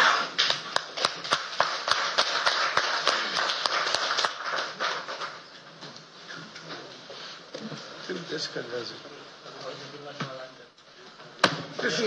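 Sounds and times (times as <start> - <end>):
applause: 0.0 - 5.4.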